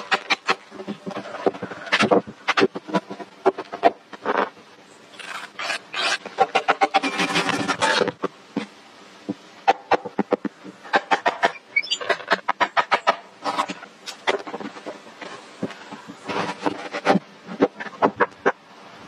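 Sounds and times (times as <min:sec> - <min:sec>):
rasping scraping: 0:05.2 - 0:08.2.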